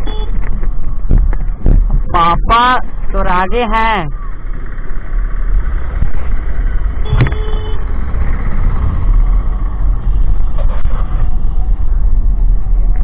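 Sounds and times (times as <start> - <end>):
road noise: 0.0 - 13.0
wind buffeting microphone: 0.4 - 2.5
motorcycle engine: 4.1 - 12.9.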